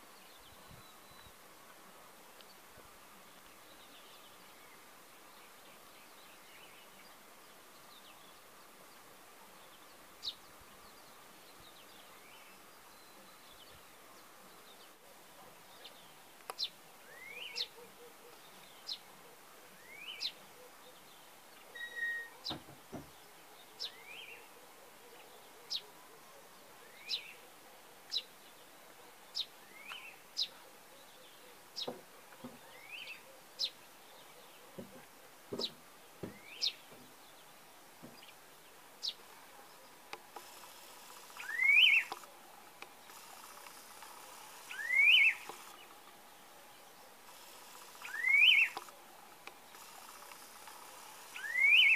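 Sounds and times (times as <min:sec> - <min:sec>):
small bird chirping: 0:39.0 - 0:51.9.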